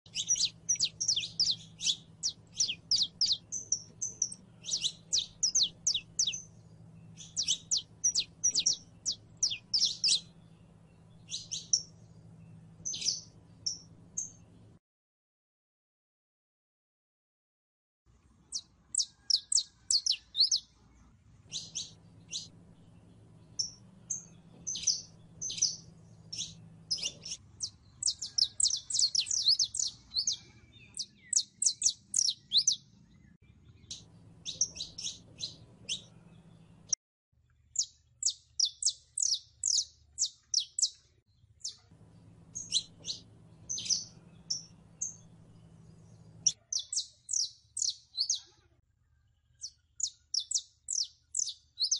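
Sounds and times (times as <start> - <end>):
finch singing chirps and trills: 0.1 - 14.7, 18.5 - 20.8, 21.4 - 37.0, 37.7 - 41.0, 41.6 - 48.6, 49.6 - 51.9
faint low hum: 0.1 - 14.8, 19.3 - 37.7, 40.1 - 46.7.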